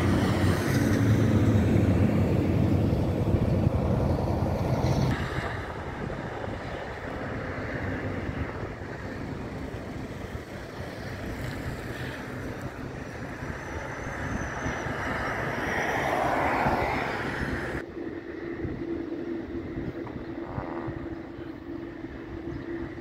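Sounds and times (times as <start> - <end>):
distant jet engines: 0.0 - 23.0
wind on microphone: 0.0 - 23.0.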